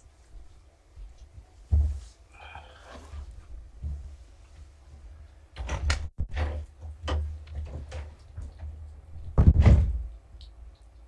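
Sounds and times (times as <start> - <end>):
heavy thump: 9.4 - 10.0.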